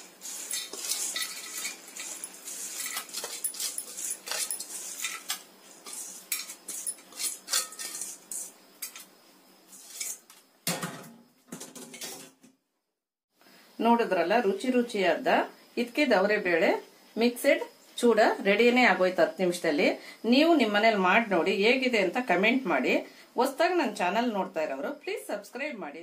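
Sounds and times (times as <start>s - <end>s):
snack rattling in steel colander: 0.4s - 9.0s.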